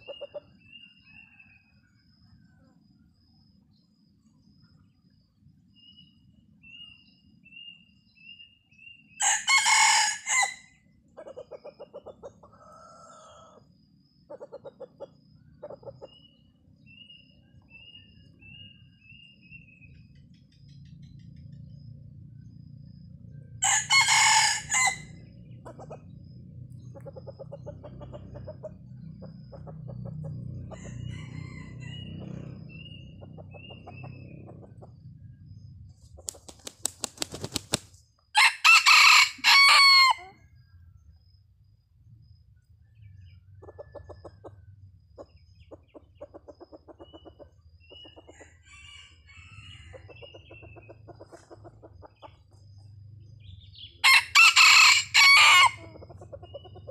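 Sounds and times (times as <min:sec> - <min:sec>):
rooster crowing: 0:09.2 - 0:10.8, 0:12.5 - 0:13.6, 0:23.6 - 0:25.2, 0:30.7 - 0:32.2, 0:38.4 - 0:40.4, 0:48.4 - 0:50.1, 0:54.0 - 0:56.0
rapid low clucking: 0:32.8 - 0:38.0.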